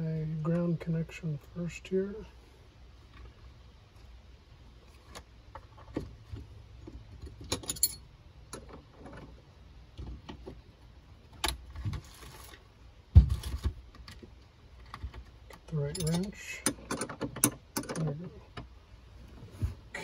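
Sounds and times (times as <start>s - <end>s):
metal tools clinking: 7.3s - 8.1s, 15.7s - 18.2s.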